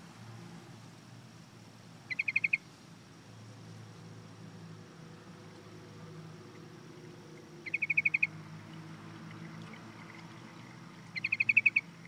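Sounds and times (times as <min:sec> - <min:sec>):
low steady hum: 0:00.0 - 0:12.0
bird calling rapid notes: 0:02.1 - 0:02.6, 0:07.6 - 0:08.4, 0:11.1 - 0:12.0.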